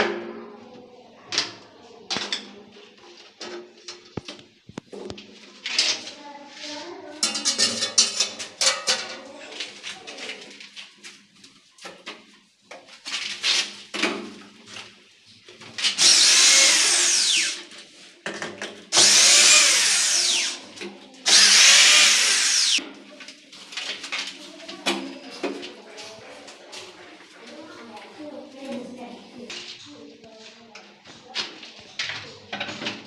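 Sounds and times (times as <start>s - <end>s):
electric hand drill drilling: 16.0s - 17.7s, 18.9s - 20.7s, 21.3s - 22.8s.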